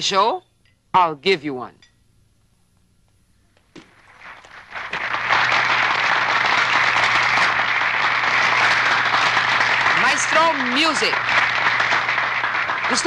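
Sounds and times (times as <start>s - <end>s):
crowd applause: 3.8s - 13.0s.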